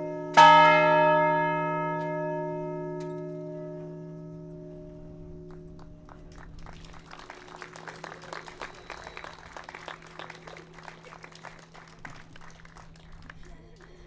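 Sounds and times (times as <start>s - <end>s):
large church bell ringing: 0.0s - 6.0s
crowd applauding: 5.5s - 14.0s.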